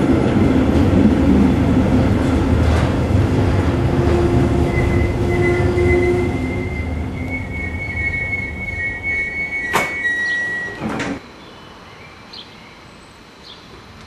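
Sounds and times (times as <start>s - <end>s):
train rumble: 0.0s - 11.2s
wheel squeal: 4.0s - 11.2s.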